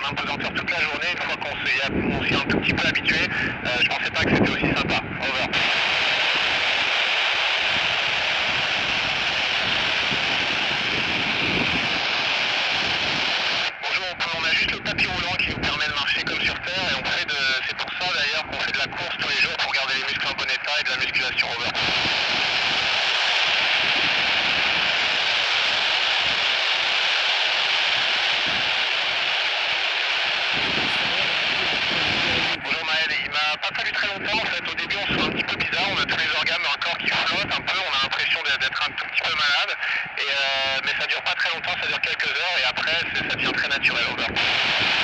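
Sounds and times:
radio static hissing: 0:00.0 - 0:45.0.

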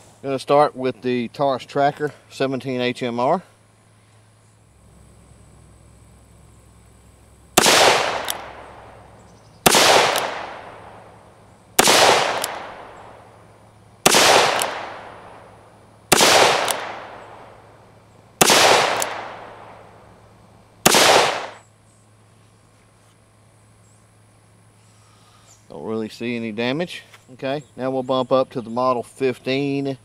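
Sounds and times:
revolver shots with echo: 0:07.6 - 0:09.1, 0:09.7 - 0:11.2, 0:11.8 - 0:13.3, 0:14.1 - 0:15.5, 0:16.1 - 0:17.7, 0:18.4 - 0:20.0, 0:20.9 - 0:21.6.

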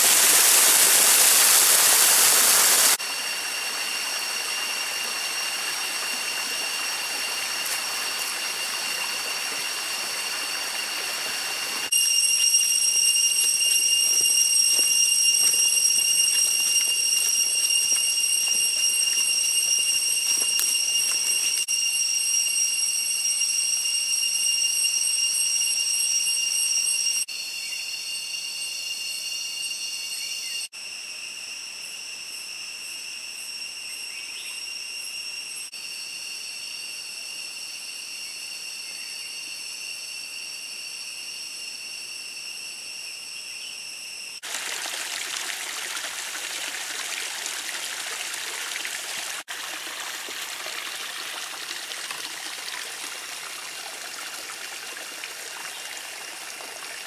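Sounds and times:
stream rushing: 0:00.0 - 0:11.9, 0:44.4 - 0:57.0
cicadas droning: 0:00.0 - 0:57.0.

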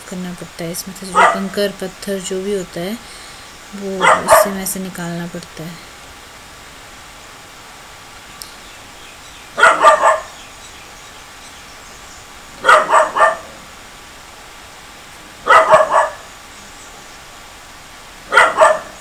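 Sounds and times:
dog barking: 0:01.1 - 0:01.6, 0:04.0 - 0:04.6, 0:09.6 - 0:10.4, 0:12.6 - 0:13.6, 0:15.4 - 0:16.3, 0:18.3 - 0:19.0.

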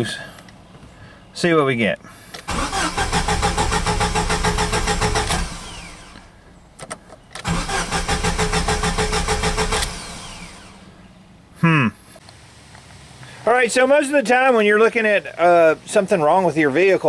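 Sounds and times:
car engine cranking: 0:02.4 - 0:10.9.

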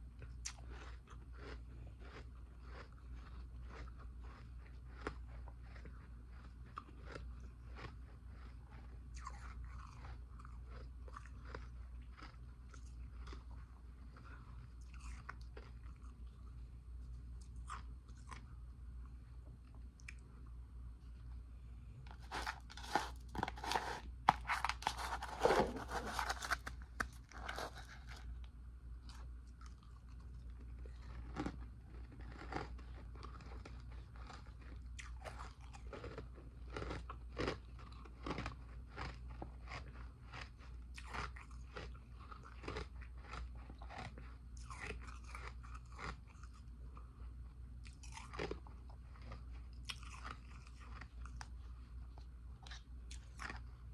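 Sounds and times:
ice crunching while chewed: 0:00.1 - 0:18.6, 0:22.1 - 0:53.9.

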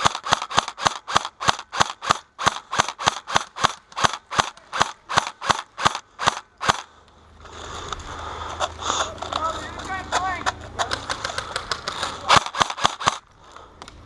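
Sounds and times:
airsoft rifle firing sharp cracks: 0:00.0 - 0:07.0, 0:10.1 - 0:13.3.

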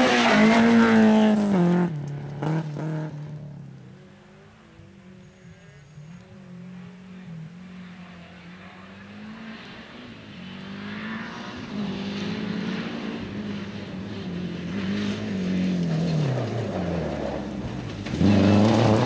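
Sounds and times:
rally car engine revving: 0:00.0 - 0:19.0
tyres hissing on gravel: 0:16.2 - 0:19.0.

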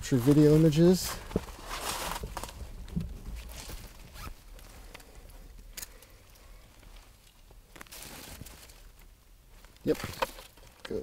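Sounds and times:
rustling in dry leaves: 0:00.0 - 0:04.9, 0:07.8 - 0:09.0.

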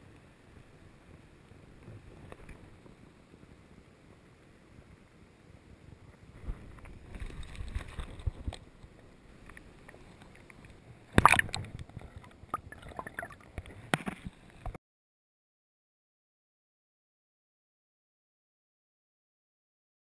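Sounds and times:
water sloshing underwater: 0:06.4 - 0:14.8
loud splash: 0:11.2 - 0:11.6.

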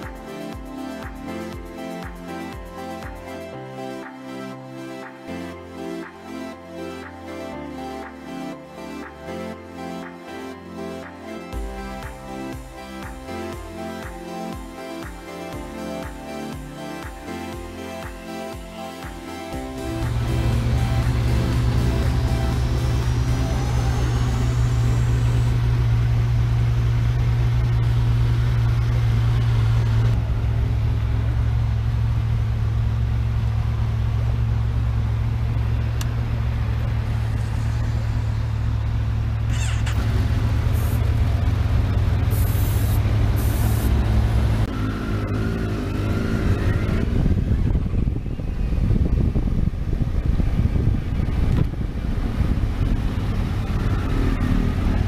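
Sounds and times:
motorcycle engine idling and revving: 0:11.6 - 0:15.3, 0:19.1 - 0:55.0
other motorcycles running: 0:19.6 - 0:55.0
wind noise: 0:46.7 - 0:55.0.

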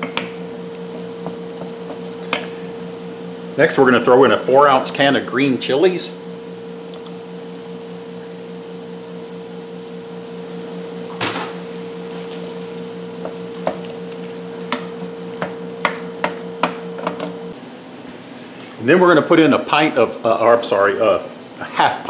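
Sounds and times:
wooden spoon knocking on skillet: 0:00.0 - 0:02.6, 0:13.2 - 0:13.9, 0:14.7 - 0:17.2
steady low hum: 0:00.0 - 0:22.0.

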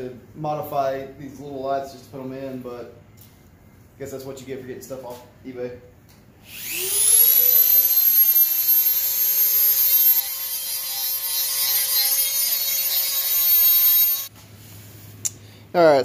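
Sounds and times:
rotary tool grinding plastic: 0:06.6 - 0:14.3.

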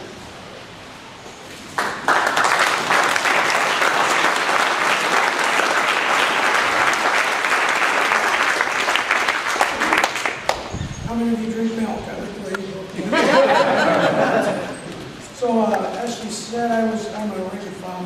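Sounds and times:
audience applauding: 0:01.8 - 0:10.7.

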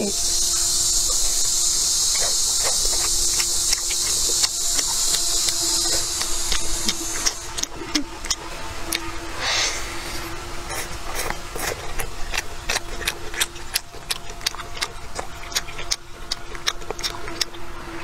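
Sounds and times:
wet chewing mouth smacks: 0:02.1 - 0:09.1, 0:10.7 - 0:17.6.

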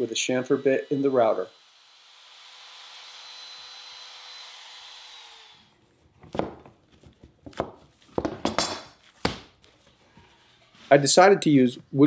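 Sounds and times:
router whine spinning down: 0:00.0 - 0:05.7
clamps knocking on wooden workbench: 0:07.5 - 0:08.9.

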